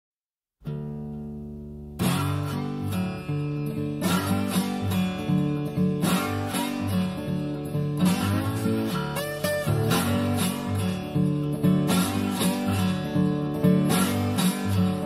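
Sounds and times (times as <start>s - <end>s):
guitar strumming: 0.6s - 15.0s.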